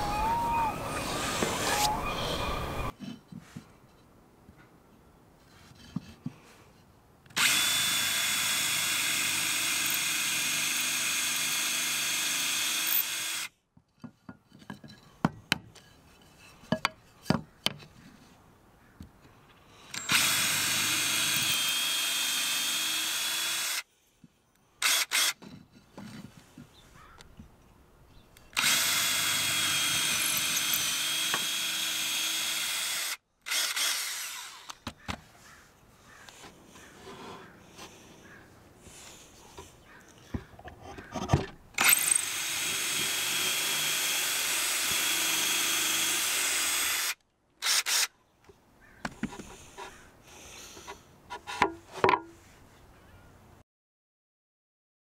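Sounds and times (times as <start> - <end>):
cordless drill motor whine: 7.4 - 13.5, 19.9 - 23.8, 28.6 - 34.8, 41.8 - 48.1.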